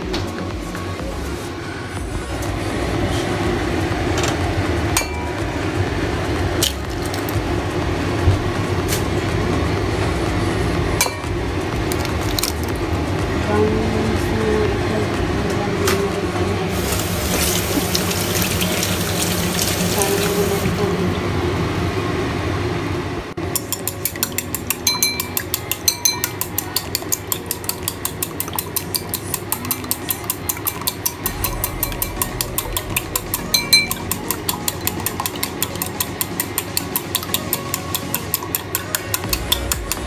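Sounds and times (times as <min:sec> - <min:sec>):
tap water running into sink: 0:16.8 - 0:20.8
chopsticks beating eggs in bowl: 0:23.4 - 0:40.0.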